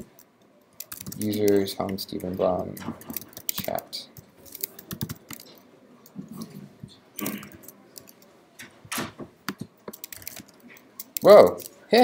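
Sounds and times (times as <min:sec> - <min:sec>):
computer keyboard keys tapping: 0:00.0 - 0:05.6, 0:09.5 - 0:11.7.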